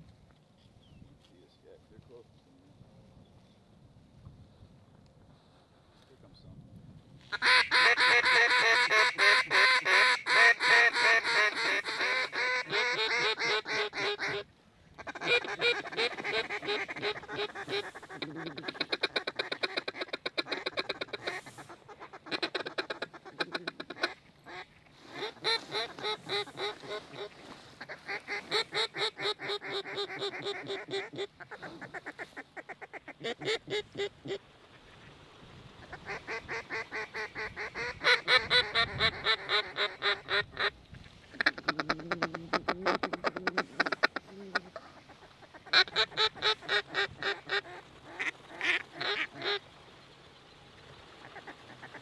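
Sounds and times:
waterfowl calls blown: 7.3s - 34.4s.

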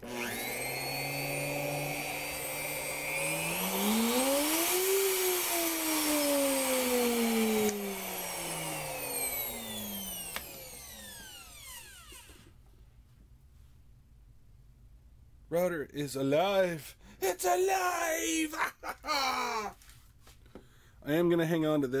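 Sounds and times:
router motor whining: 0.0s - 12.5s
click: 10.3s - 10.5s.

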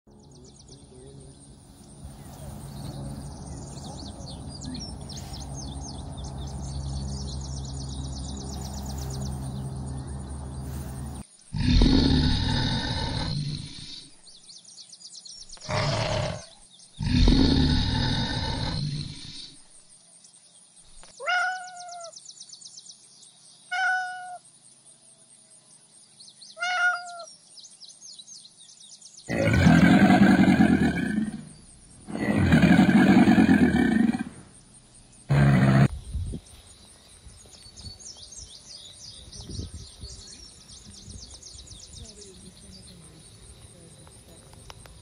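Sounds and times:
faint insect chirping: 0.1s - 45.0s
crocodile growling: 11.5s - 14.1s, 15.6s - 19.6s, 29.3s - 34.5s, 35.3s - 35.9s.

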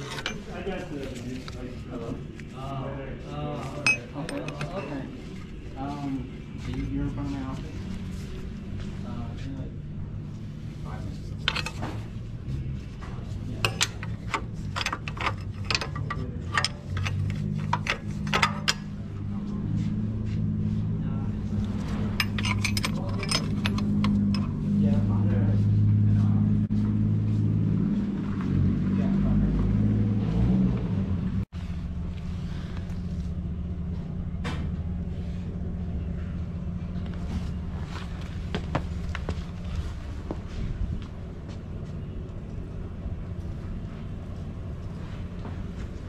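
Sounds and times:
low mechanical rumble: 0.0s - 46.0s
steady low hum: 0.0s - 46.0s.

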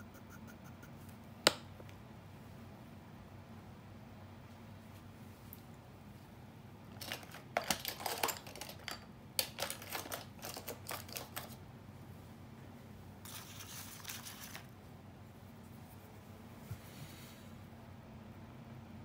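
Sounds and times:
scratchy rustling: 13.3s - 14.7s.

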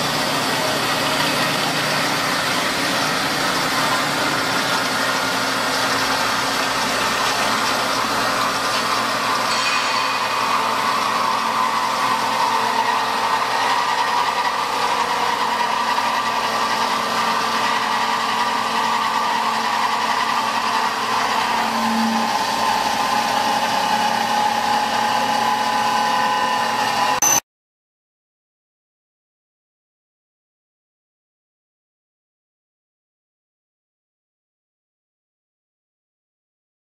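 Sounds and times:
drilling machine whine: 0.0s - 27.4s.

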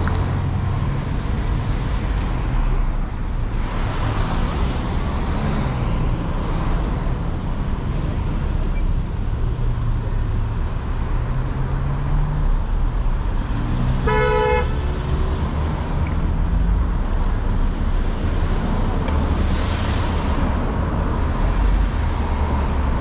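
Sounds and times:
cars driving past: 0.0s - 23.0s
car horn toot: 14.0s - 14.8s.

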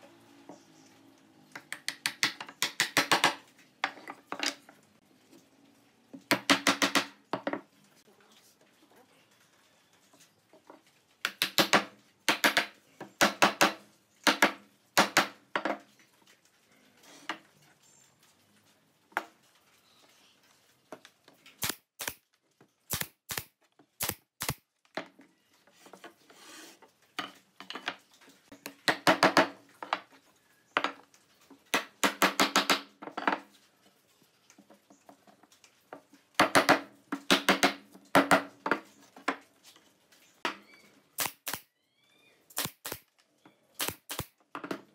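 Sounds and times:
wooden rails knocking together: 6.2s - 7.7s, 28.7s - 30.1s, 31.7s - 33.5s, 36.4s - 39.4s.

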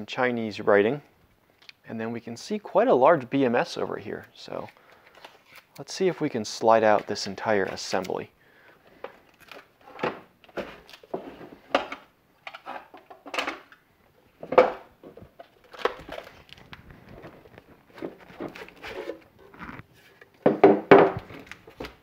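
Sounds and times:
plastic case knocking and scraping: 20.4s - 21.5s.

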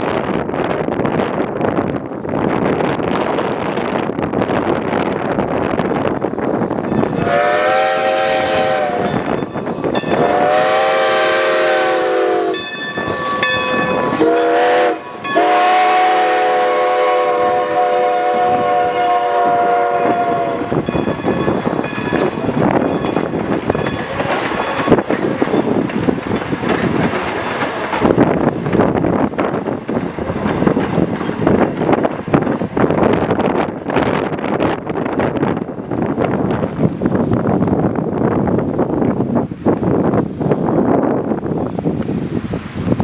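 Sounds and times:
steam locomotive chime whistle: 6.9s - 23.2s
train wheels clacking over rail joints: 20.8s - 34.2s.

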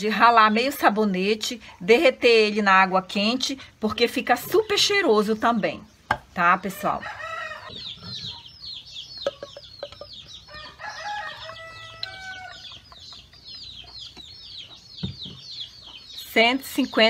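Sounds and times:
chicks peeping: 4.3s - 17.0s
chicken calls: 6.6s - 16.3s.

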